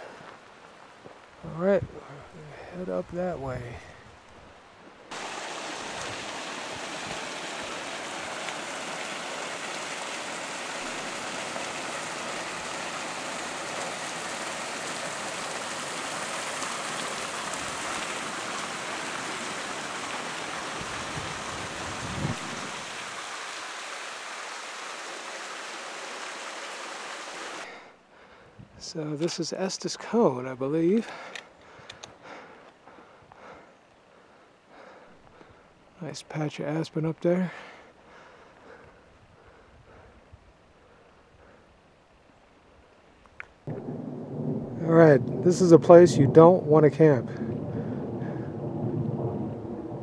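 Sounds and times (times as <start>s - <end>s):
water rushing over spillway: 5.1s - 27.7s.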